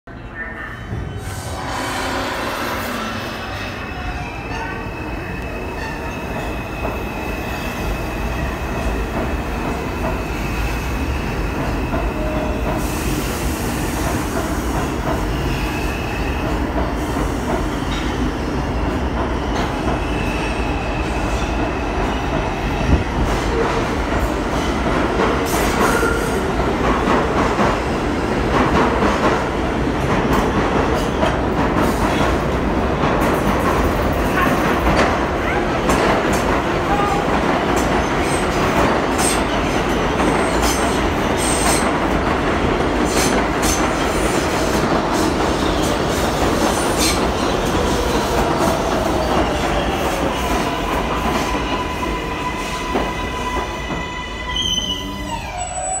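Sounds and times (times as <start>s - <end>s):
subway train rumbling past: 0.1s - 56.0s.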